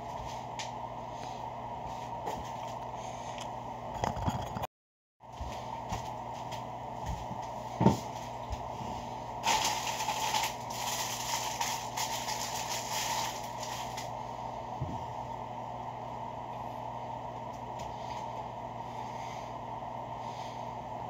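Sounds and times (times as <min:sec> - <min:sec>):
background hum: 0:00.0 - 0:21.0
paper wrapper crinkling: 0:09.4 - 0:14.1.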